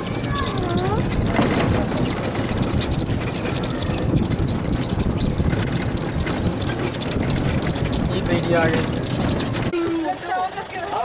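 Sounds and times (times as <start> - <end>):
tyre rumble on pavement: 0.0 - 9.8
cart body rattling: 0.0 - 11.0.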